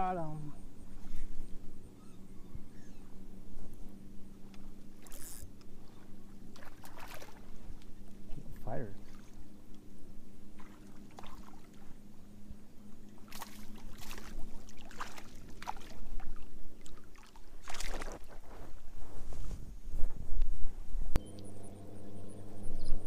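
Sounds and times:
fish splashing at water surface: 0:06.5 - 0:07.5.

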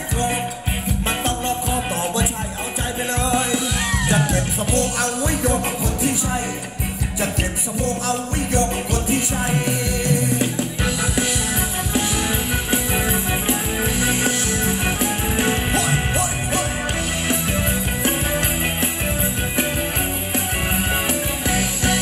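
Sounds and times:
person singing: 0:00.0 - 0:13.0, 0:14.2 - 0:17.1, 0:21.1 - 0:22.0
live band dance music: 0:00.0 - 0:22.0.

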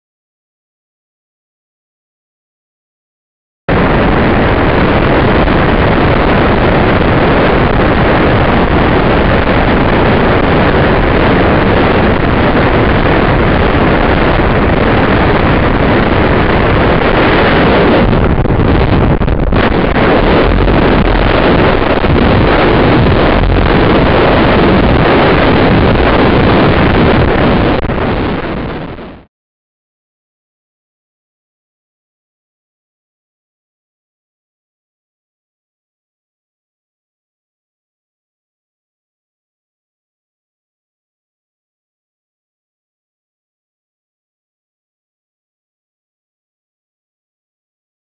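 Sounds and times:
wind rushing over microphone: 0:03.7 - 0:29.3.

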